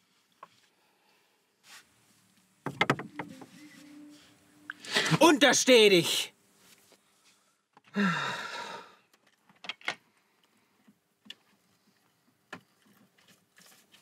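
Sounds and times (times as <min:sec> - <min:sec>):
small knocks: 0:02.6 - 0:03.5
person sighing: 0:04.7 - 0:05.3, 0:07.9 - 0:09.0.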